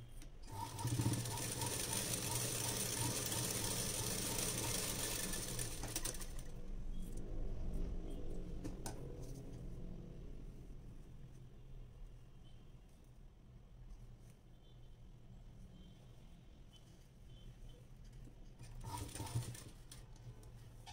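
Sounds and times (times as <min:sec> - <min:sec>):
sewing machine stitching: 0:00.4 - 0:06.5, 0:18.6 - 0:20.0.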